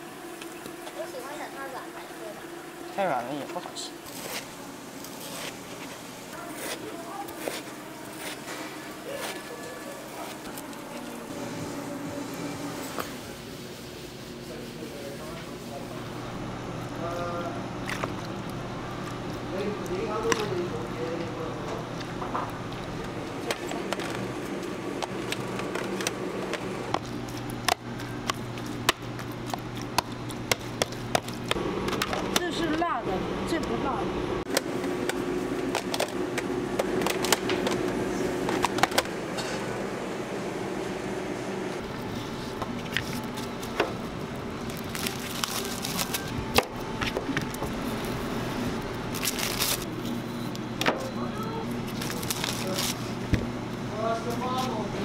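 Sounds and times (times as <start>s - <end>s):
low kitchen hum: 0.0s - 55.0s
plastic wrap crinkling: 44.6s - 46.4s, 49.1s - 50.0s, 51.8s - 53.1s.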